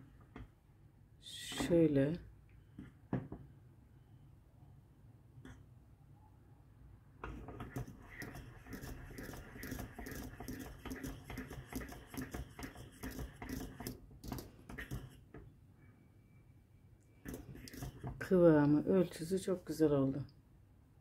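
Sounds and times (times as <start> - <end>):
metal utensil scraping a pot: 7.2 - 13.9, 17.2 - 18.3.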